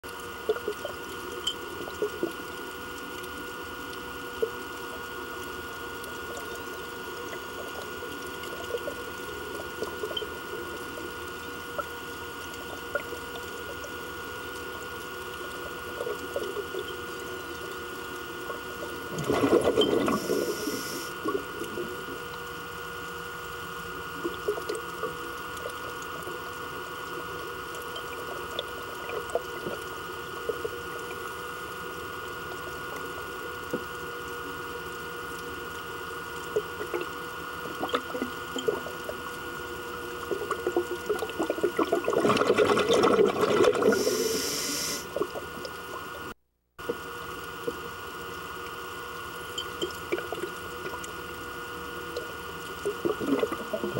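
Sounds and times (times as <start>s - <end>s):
steady underwater hum: 0.0s - 53.9s
scuba regulator exhaling bubbles: 18.5s - 22.2s, 40.2s - 46.1s, 52.8s - 53.9s.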